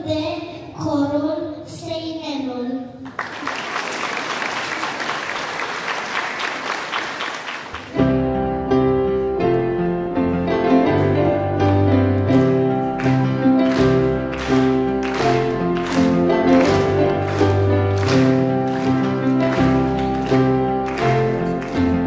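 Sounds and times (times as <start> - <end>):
applause: 3.0 - 8.0, 12.4 - 22.0
keyboard chords and bass line: 8.0 - 22.0.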